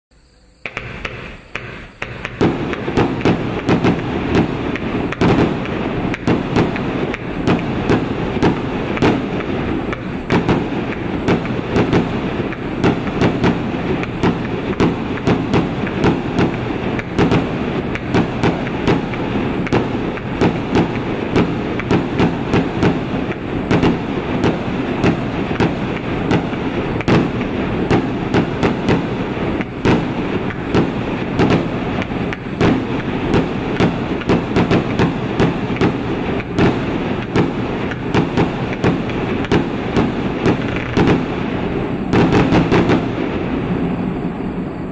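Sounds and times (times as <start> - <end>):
firework crackling: 0.6 - 44.9
firework reports: 0.6 - 44.9.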